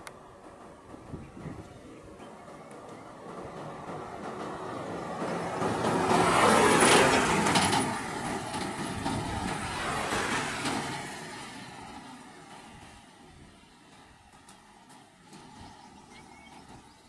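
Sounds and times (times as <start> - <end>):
lorry driving past: 2.2 - 13.7.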